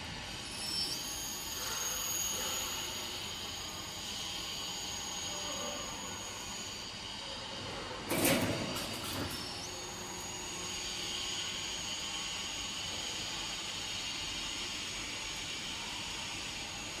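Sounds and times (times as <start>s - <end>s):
faint high whine: 0.0s - 17.0s
machine mechanical hiss: 0.0s - 17.0s.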